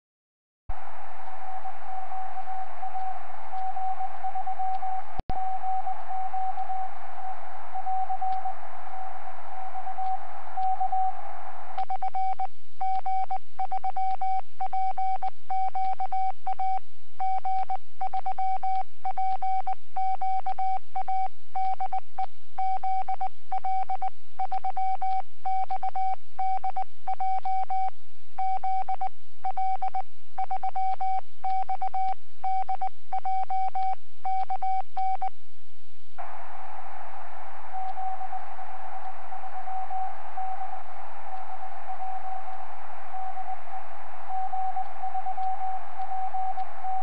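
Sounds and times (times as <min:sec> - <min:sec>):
radio band hiss: 0:00.7 - 0:11.8, 0:36.2 - 0:47.0
morse code tone keyed on and off: 0:22.6 - 0:35.3.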